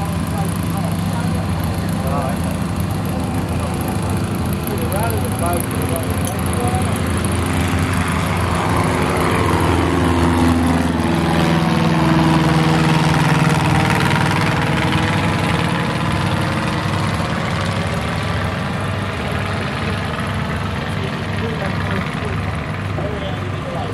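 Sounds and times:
light aircraft engine and propeller: 0:00.0 - 0:23.9.

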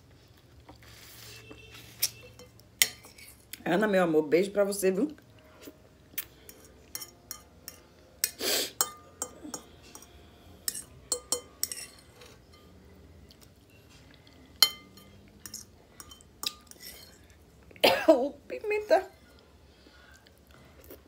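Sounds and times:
clinks against a dish: 0:10.7 - 0:12.8.

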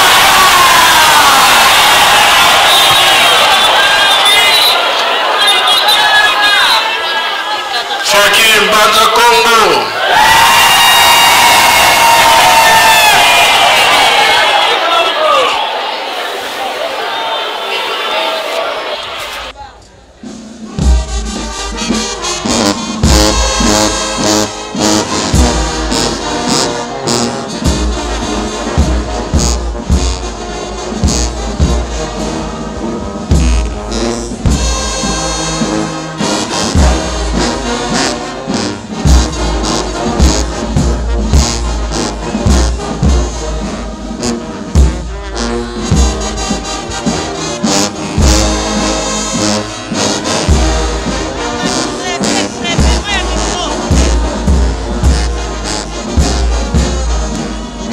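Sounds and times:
heavy drum beat: 0:20.2 - 0:57.9
trumpets and trombones playing: 0:20.2 - 0:57.9.

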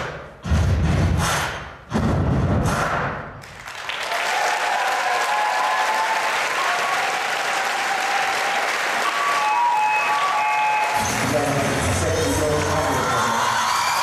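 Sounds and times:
audience applause: 0:03.4 - 0:14.0.

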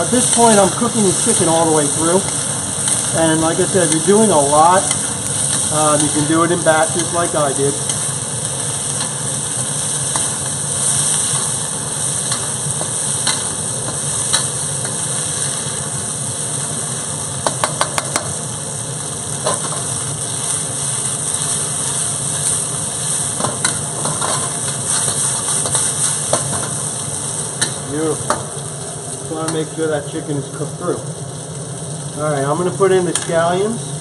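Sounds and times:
steady low hum: 0:00.0 - 0:17.6
chicken sizzling in a wok: 0:00.0 - 0:34.0.

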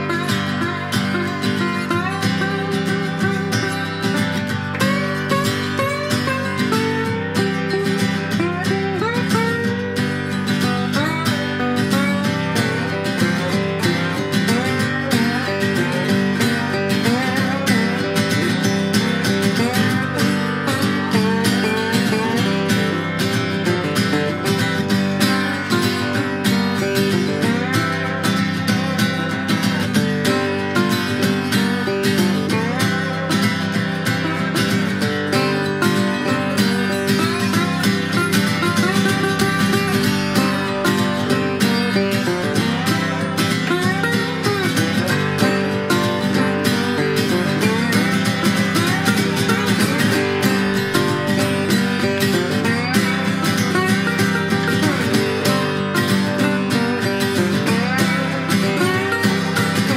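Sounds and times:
acoustic guitars strumming: 0:00.0 - 0:59.9.

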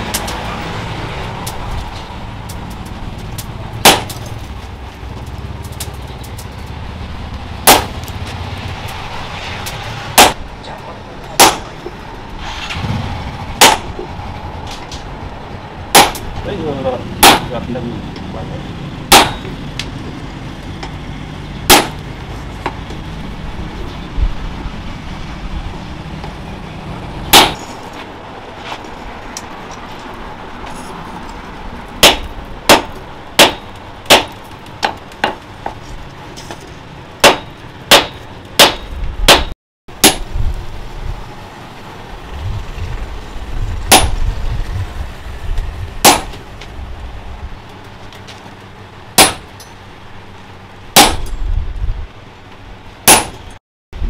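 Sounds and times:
hammer clanging on anvil: 0:19.1 - 0:19.6, 0:37.2 - 0:40.2, 0:49.2 - 0:49.8.

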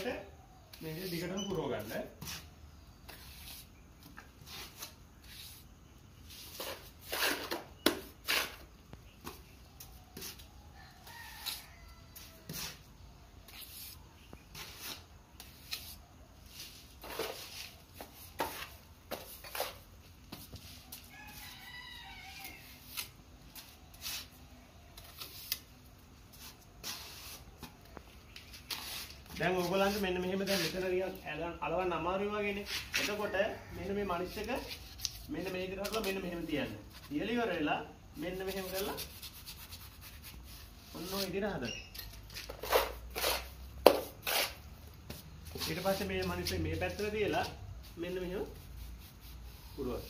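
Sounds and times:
trowel scraping and tapping: 0:17.0 - 0:20.7, 0:41.9 - 0:45.3.

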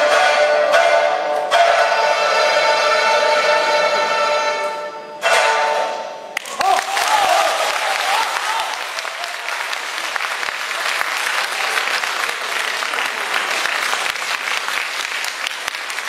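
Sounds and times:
audience applauding: 0:06.4 - 0:16.0.

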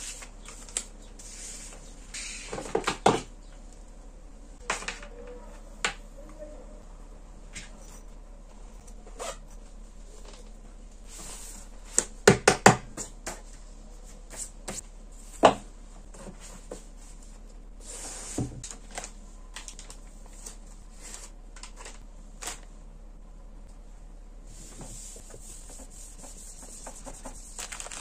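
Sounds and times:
rustling of packets and paper: 0:18.7 - 0:22.7, 0:26.2 - 0:28.0.

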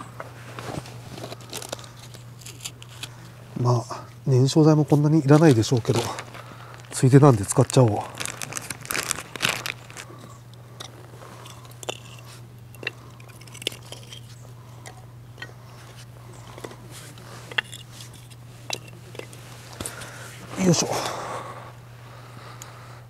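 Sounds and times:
wooden sticks knocking and clattering: 0:17.5 - 0:20.0.

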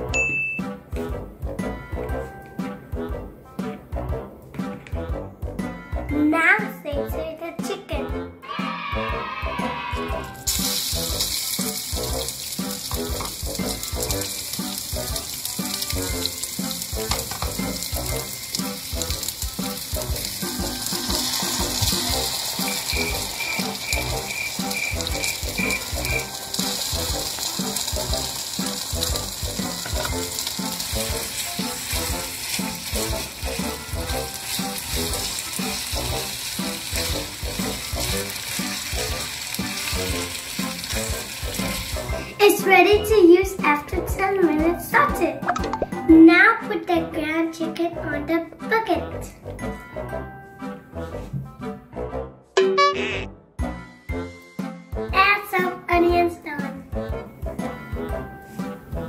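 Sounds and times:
chicken sizzling in hot oil: 0:10.1 - 0:43.7.

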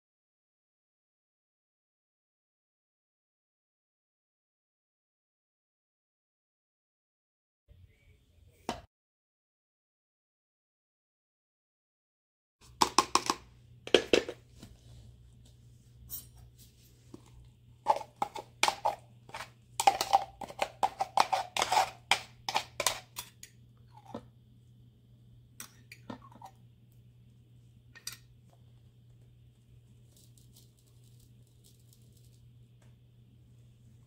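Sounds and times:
spatula scraping plastic cup: 0:17.9 - 0:23.2.

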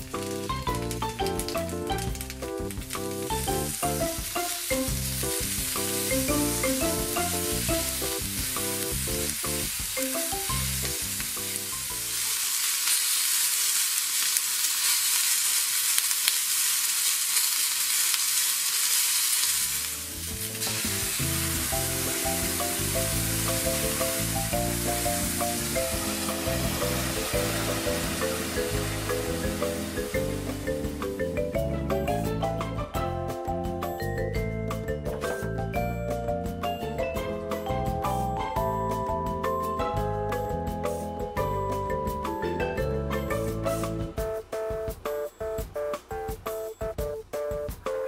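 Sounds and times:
background music: 0:00.0 - 0:12.2, 0:19.8 - 0:48.0
peppers sizzling in a frying pan: 0:00.0 - 0:32.6.

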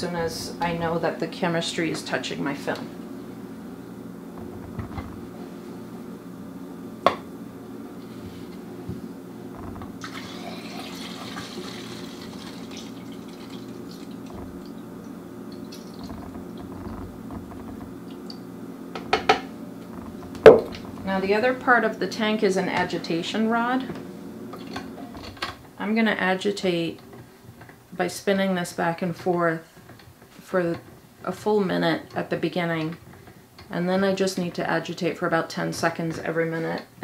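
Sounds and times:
sharp clicks and knocks: 0:04.4 - 0:05.2, 0:15.5 - 0:21.2
liquid pouring into plastic tank: 0:09.6 - 0:18.4
knock: 0:20.4 - 0:20.8.

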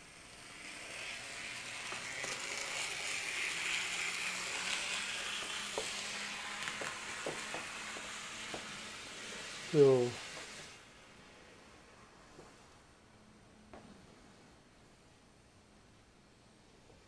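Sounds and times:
model train motor whirring: 0:00.0 - 0:11.0
wheels clicking over rail joints: 0:00.4 - 0:09.6.

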